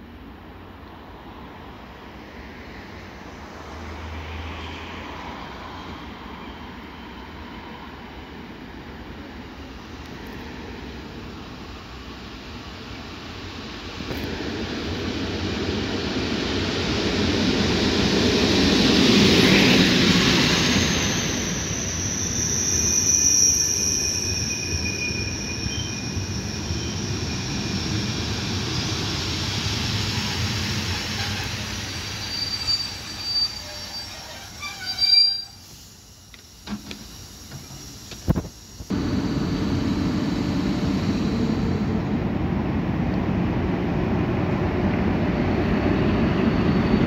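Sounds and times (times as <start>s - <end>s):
train rolling past: 0.2s - 47.0s
brake squeal: 20.2s - 28.2s, 30.1s - 38.3s, 46.1s - 47.0s.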